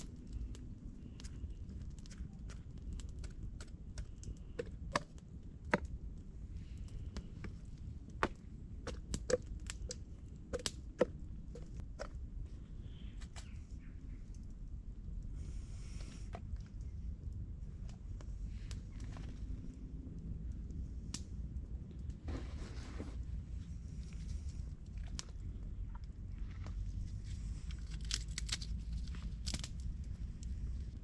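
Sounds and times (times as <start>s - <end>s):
low rumble: 0.0s - 31.0s
rustling scrape: 22.2s - 23.4s.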